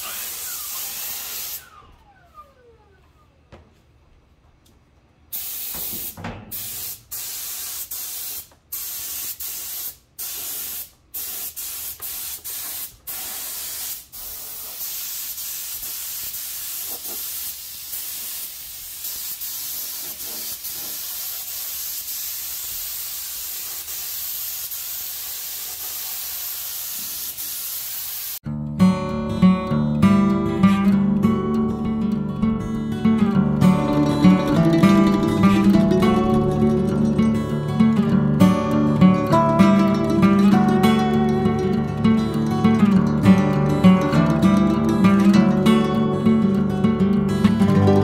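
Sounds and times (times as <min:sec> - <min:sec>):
air spray gun hissing: 0:00.0 - 0:01.9, 0:05.3 - 0:28.4.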